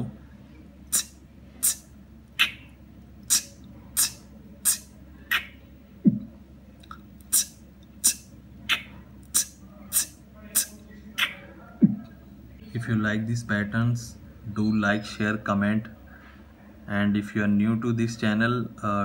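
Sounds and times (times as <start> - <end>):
beatbox low bass sound: 0.9 - 1.8, 3.3 - 6.3, 7.3 - 12.0
beatboxing mouth clicks: 0.9 - 2.6, 3.2 - 12.1.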